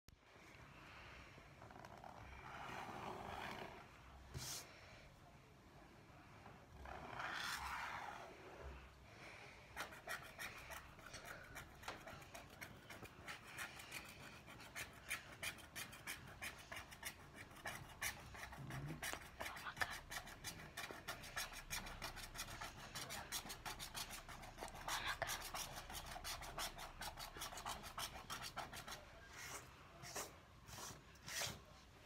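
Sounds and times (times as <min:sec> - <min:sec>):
stylus scratching paper: 0:06.8 - 0:08.4, 0:09.7 - 0:31.6.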